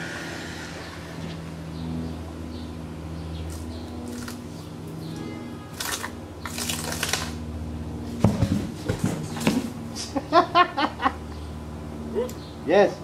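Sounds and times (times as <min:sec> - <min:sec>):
tree trunk cracking and breaking: 0:05.8 - 0:07.4.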